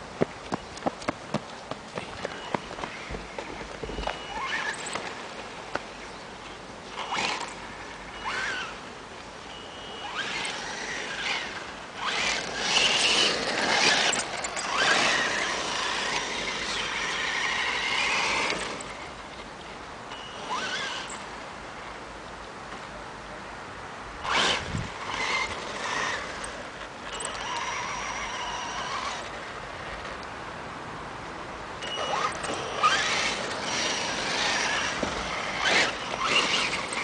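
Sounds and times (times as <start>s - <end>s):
tyres skidding on gravel: 0.0s - 8.9s, 9.9s - 19.5s, 24.2s - 30.2s, 31.9s - 37.0s
rc car motor whine: 2.3s - 5.3s, 6.8s - 19.2s, 20.1s - 21.4s, 24.2s - 29.9s, 31.8s - 37.0s.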